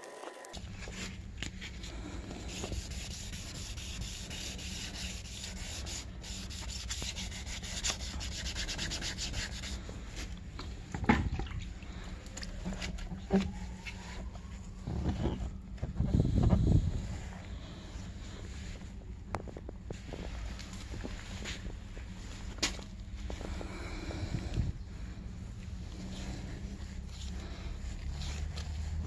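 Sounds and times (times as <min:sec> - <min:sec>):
sandpaper rubbing strokes: 0:01.8 - 0:10.1.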